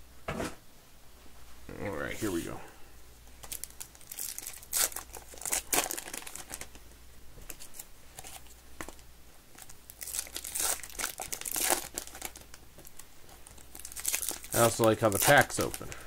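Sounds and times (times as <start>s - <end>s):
card pack wrapper tearing: 3.4s - 6.7s, 9.6s - 16.0s.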